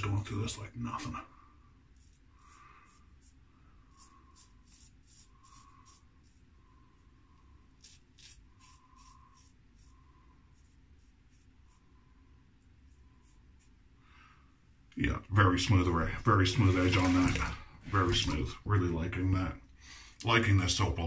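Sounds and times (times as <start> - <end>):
straight razor scraping stubble: 7.8 - 9.6, 16.5 - 17.5.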